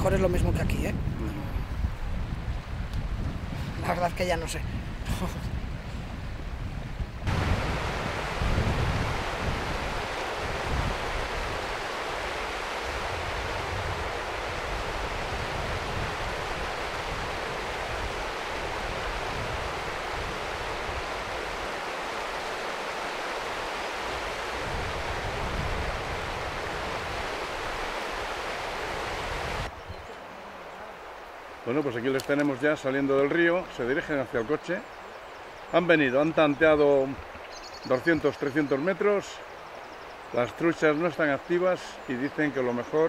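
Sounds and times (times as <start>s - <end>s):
wind buffeting microphone: 0.0s - 30.1s
river water running: 0.0s - 43.0s.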